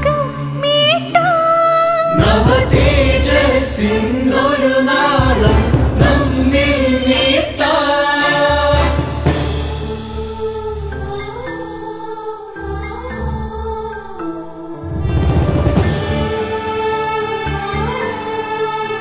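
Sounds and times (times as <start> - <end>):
person singing: 0.0 - 9.1
group of voices singing: 0.0 - 19.0
pulsing beat: 2.1 - 18.0.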